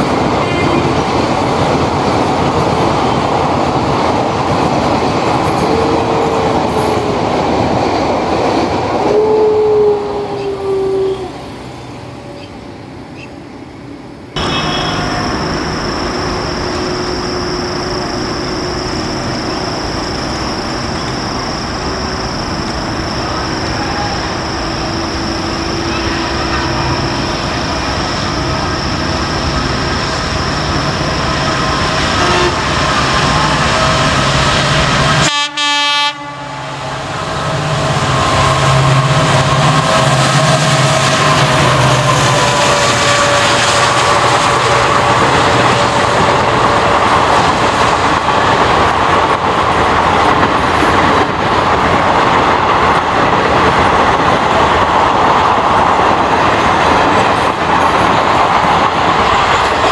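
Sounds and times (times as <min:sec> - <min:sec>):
diesel locomotive engine drone: 0:00.0 - 0:59.9
train horn: 0:09.0 - 0:11.4, 0:14.4 - 0:15.4, 0:25.6 - 0:27.5, 0:32.2 - 0:32.7, 0:34.9 - 0:44.3.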